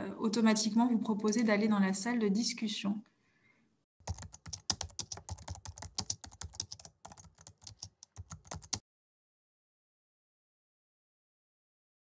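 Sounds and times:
keyboard keystroke clicks: 0:04.1 - 0:08.8.

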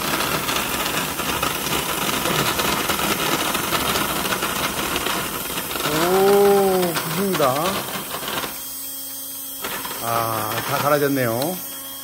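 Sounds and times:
beans being crushed: 0:00.0 - 0:12.0
coffee grinder whirring: 0:00.0 - 0:12.0.

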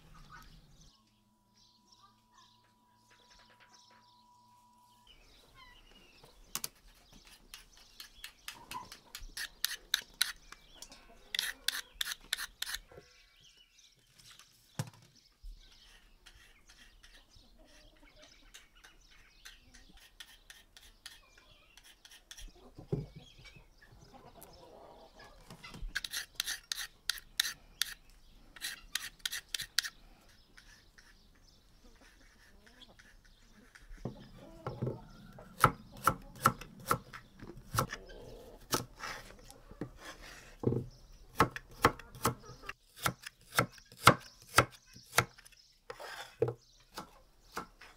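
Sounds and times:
faint bird chirps: 0:00.0 - 0:09.5, 0:12.9 - 0:26.0.

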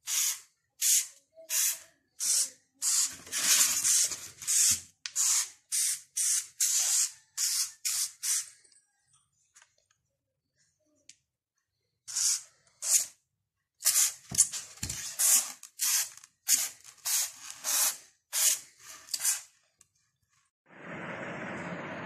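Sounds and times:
spray bottle hissing bursts: 0:00.0 - 0:08.5, 0:12.1 - 0:13.2, 0:13.8 - 0:14.5, 0:15.2 - 0:19.5.

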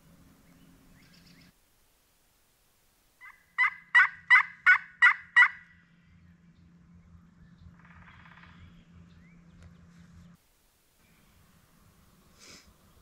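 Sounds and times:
turkey yelps: 0:03.2 - 0:05.7.

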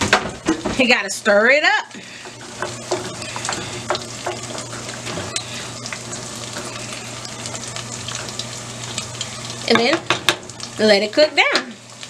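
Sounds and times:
rice bubbling in boiling water: 0:00.0 - 0:12.0.

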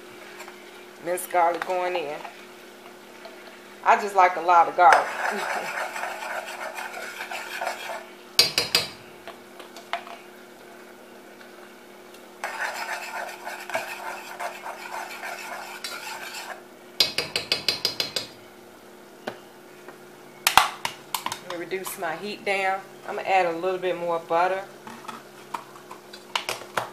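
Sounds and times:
metal spoon stirring in pot: 0:04.9 - 0:08.9, 0:12.4 - 0:18.0.

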